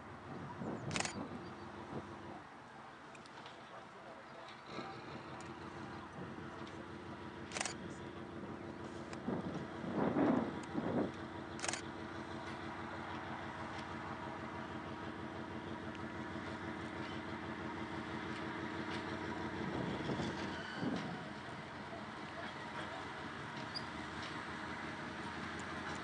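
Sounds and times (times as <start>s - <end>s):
diesel locomotive engine drone: 0.0s - 26.0s
sharp click: 11.6s - 11.8s.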